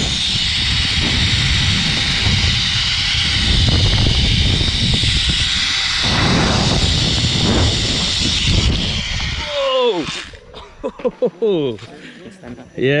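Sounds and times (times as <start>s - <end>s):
wind buffeting microphone: 0.0s - 9.6s
zipline pulleys whirring: 0.0s - 10.6s.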